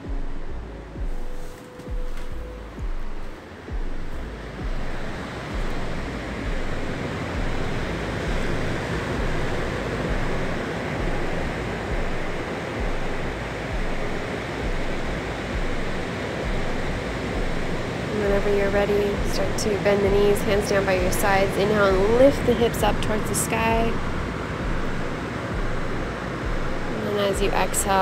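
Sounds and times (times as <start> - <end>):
ocean surf: 0.0 - 28.0.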